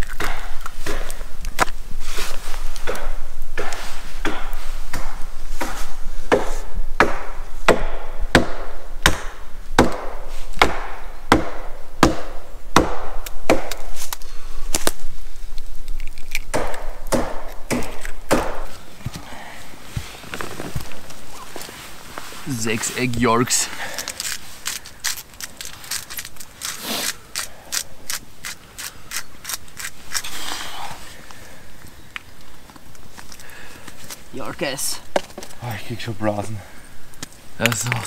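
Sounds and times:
wood chopping strikes: 0:00.0 - 0:01.7, 0:02.8 - 0:15.0, 0:16.4 - 0:18.8.

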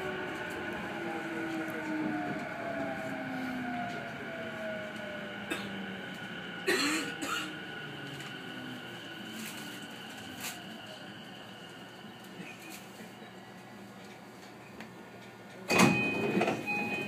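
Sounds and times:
electric train motor whine: 0:00.0 - 0:06.6
wheel and rail noise: 0:00.0 - 0:17.0.

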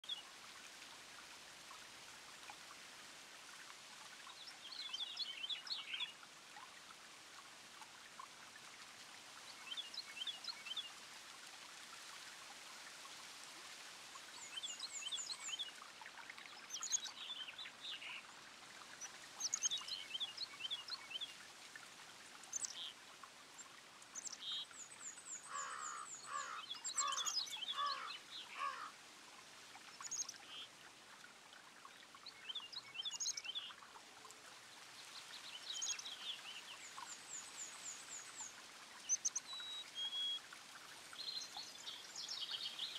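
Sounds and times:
fountain trickling: 0:00.0 - 0:42.9
small birds chirping: 0:23.6 - 0:28.9.

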